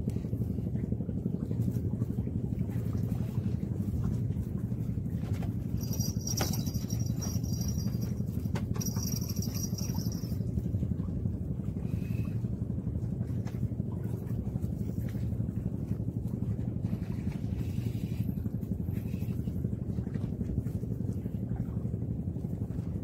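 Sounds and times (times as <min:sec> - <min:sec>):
steady low rumble: 0:00.0 - 0:23.0
fishing reel drag whining: 0:05.8 - 0:10.4.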